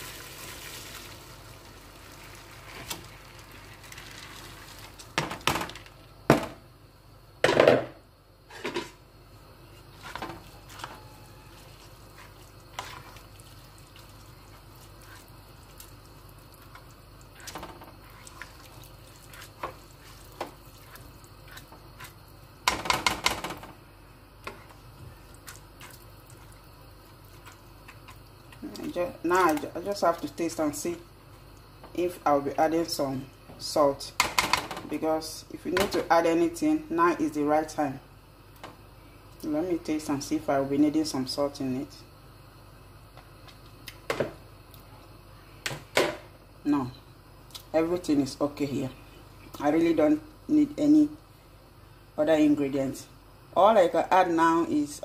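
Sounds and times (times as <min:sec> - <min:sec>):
rice poured into pot: 0:00.0 - 0:05.1.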